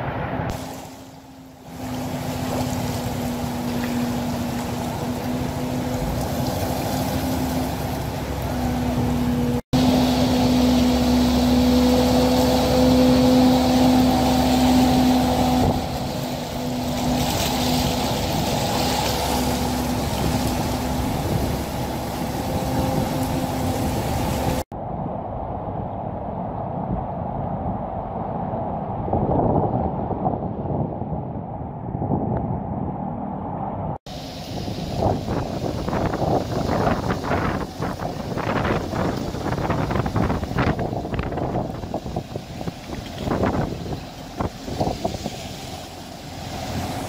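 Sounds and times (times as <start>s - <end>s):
rushing churned water: 0.0s - 24.7s, 34.1s - 47.0s
engine hum: 0.0s - 47.0s.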